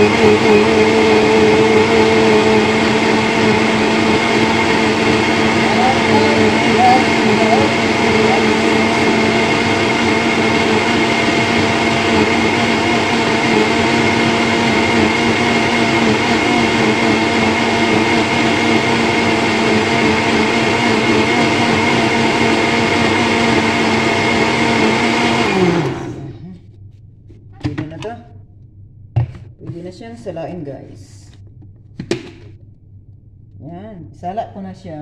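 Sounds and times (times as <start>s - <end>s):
blender motor whining: 0.0s - 26.4s.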